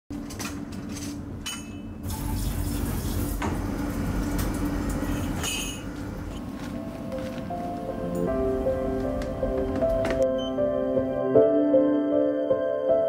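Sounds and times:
steady low hum: 0.2 - 10.2
tap water running into sink: 2.1 - 3.7.

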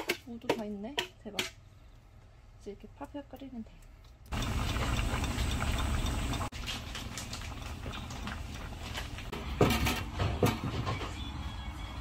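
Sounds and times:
stew bubbling at a boil: 2.8 - 9.4.

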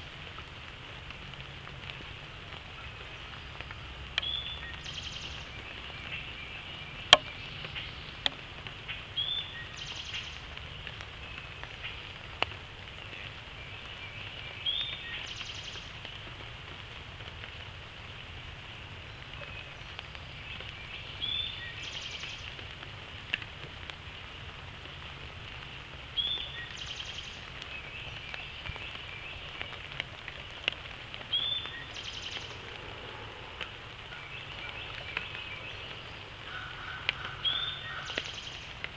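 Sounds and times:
rain falling in woodland: 0.0 - 38.9
bird call: 34.1 - 38.7.

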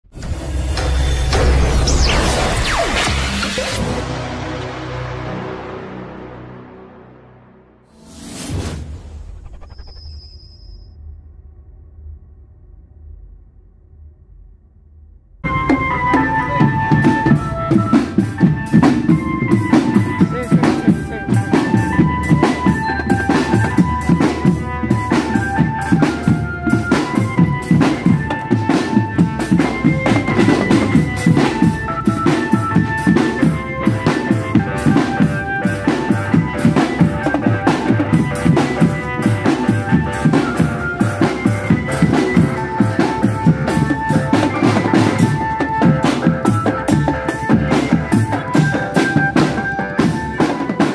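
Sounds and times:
high melody of short notes: 15.4 - 35.6
bass drums: 15.4 - 50.9
cymbals: 15.4 - 50.9
snare drums: 15.5 - 50.9.

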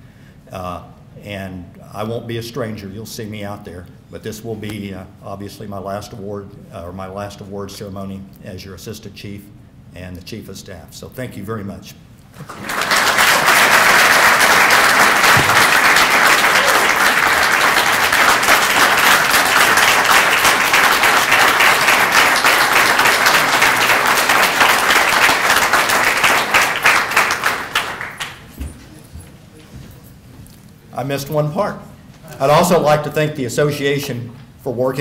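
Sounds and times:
audience applauding: 12.4 - 28.6.

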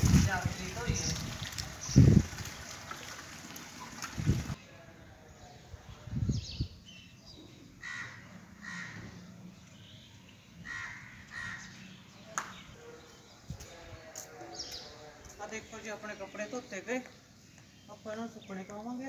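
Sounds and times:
crow cawing: 7.8 - 9.2, 10.6 - 11.8.

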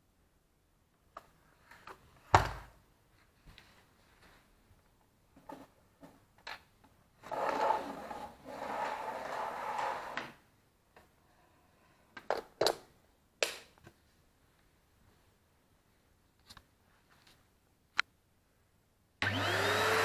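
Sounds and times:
rubbing and scraping: 7.2 - 10.4.

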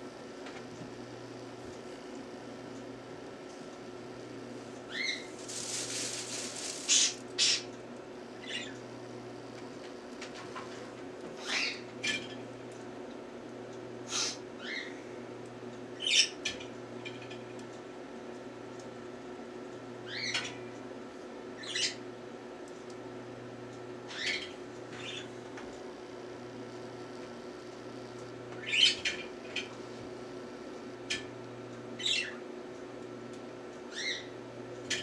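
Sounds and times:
steady low hum: 0.0 - 35.0
bird chip calls: 4.9 - 5.3, 6.9 - 7.7, 8.4 - 8.8, 28.6 - 29.0, 32.0 - 32.4.

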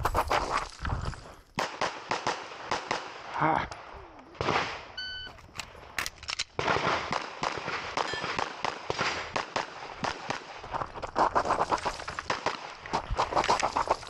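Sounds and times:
rapid pistol shots: 1.6 - 3.3, 6.5 - 14.0.

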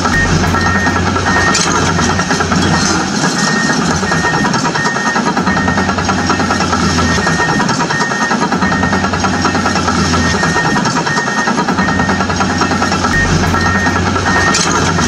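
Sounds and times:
high tone: 0.0 - 4.3, 13.2 - 15.0
engine rumble: 0.0 - 4.8, 12.1 - 15.0.

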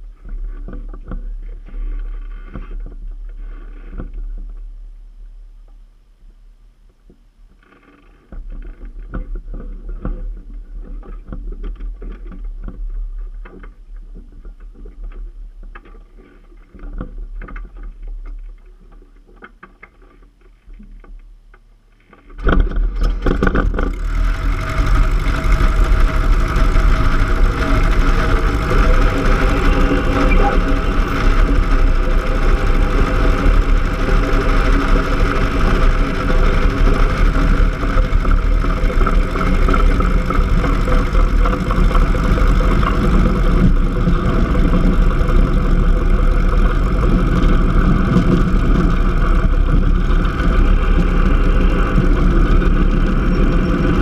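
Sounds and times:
airplane engine and propeller: 22.5 - 54.0.

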